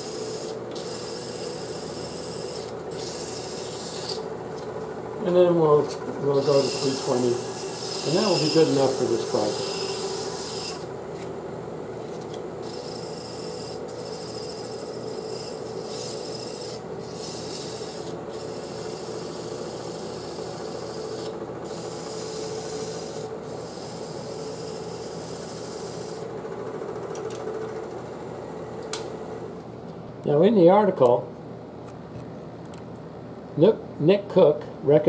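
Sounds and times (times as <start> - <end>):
lathe motor hum: 0.0 - 29.6
sandpaper hissing on wood: 6.4 - 10.8.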